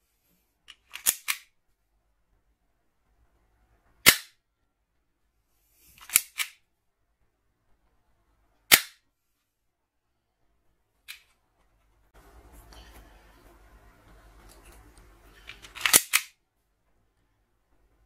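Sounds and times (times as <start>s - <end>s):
toy gun firing snaps: 0.8s - 1.5s, 4.1s - 4.4s, 6.0s - 6.6s, 8.7s - 9.0s, 15.6s - 16.4s.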